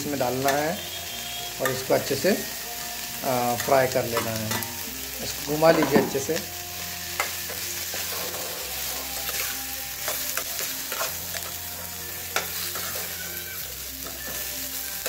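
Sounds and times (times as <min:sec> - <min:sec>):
onions sizzling: 0:00.0 - 0:15.0
metal spoon scraping a pan: 0:03.4 - 0:15.0.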